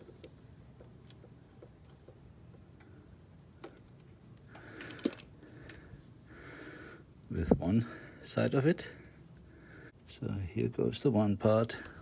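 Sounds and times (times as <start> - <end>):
clicks of wire connectors handled: 3.6 - 5.8.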